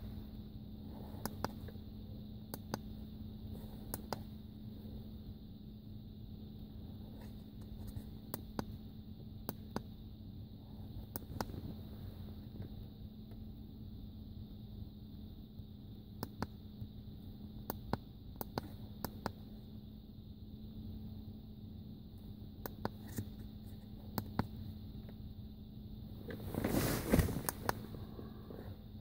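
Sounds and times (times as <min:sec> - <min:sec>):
steady low hum: 0:00.0 - 0:29.0
hand rubbing over device: 0:26.3 - 0:28.0.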